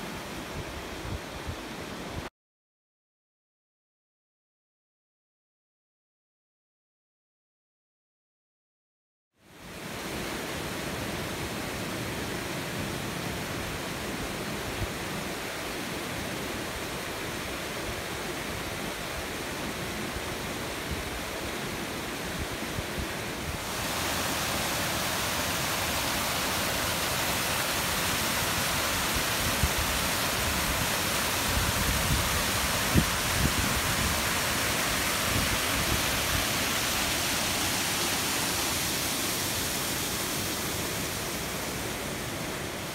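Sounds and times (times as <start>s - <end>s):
water rushing over spillway: 9.6s - 42.9s.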